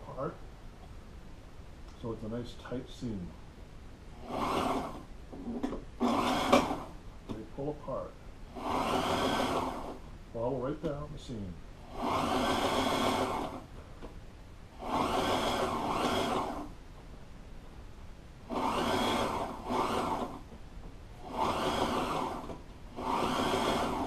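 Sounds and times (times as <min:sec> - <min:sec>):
sewing machine stitching: 0:04.2 - 0:06.9, 0:08.5 - 0:10.0, 0:11.8 - 0:13.7, 0:14.8 - 0:16.7, 0:18.5 - 0:20.5, 0:21.2 - 0:24.0.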